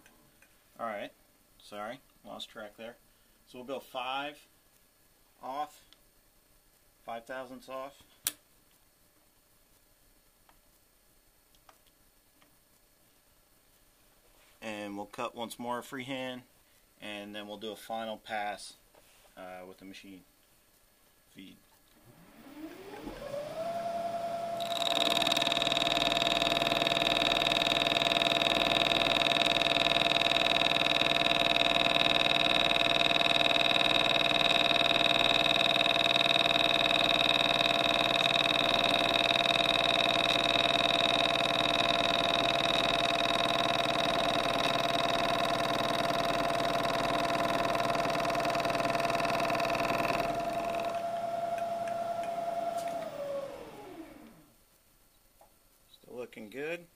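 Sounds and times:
milling machine spindle whine: 22.0s - 54.5s
end mill cutting aluminium: 22.6s - 54.4s.

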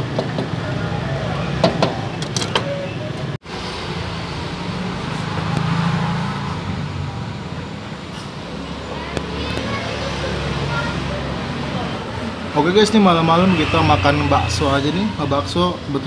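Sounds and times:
street traffic rumble: 0.0s - 16.0s
vehicle passing: 3.5s - 7.6s, 8.4s - 16.0s.

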